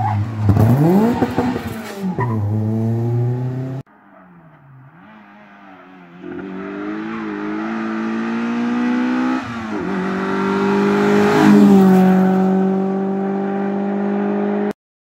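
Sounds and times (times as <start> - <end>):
rally car accelerating past: 6.2 - 14.7.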